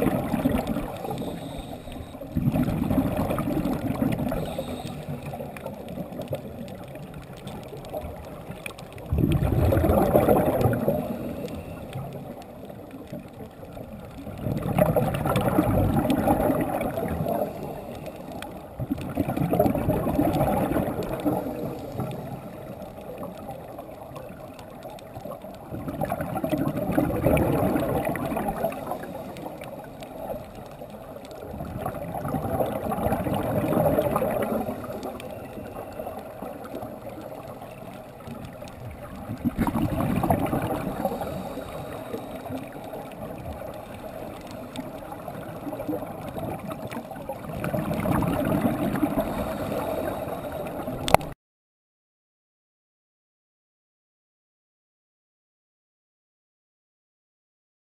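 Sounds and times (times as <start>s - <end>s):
bubbling regulator exhalations: 0.0s - 6.2s, 9.1s - 12.0s, 14.4s - 17.9s, 25.8s - 29.3s, 45.9s - 51.3s
diver inhaling: 1.1s - 2.2s, 4.3s - 5.5s, 40.7s - 42.5s, 49.1s - 51.0s.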